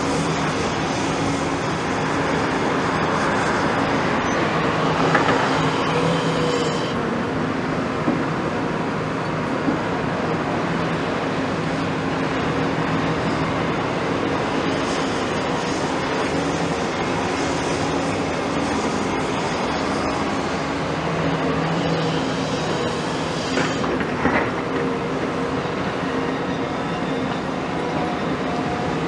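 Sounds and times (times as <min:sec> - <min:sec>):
excavator diesel engine: 0:00.0 - 0:29.0.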